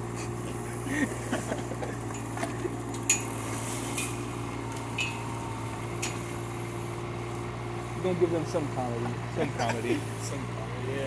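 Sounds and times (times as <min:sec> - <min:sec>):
excavator diesel engine running: 0:00.0 - 0:11.0
sharp metallic clinks: 0:03.0 - 0:04.2, 0:04.9 - 0:05.4, 0:06.0 - 0:06.3.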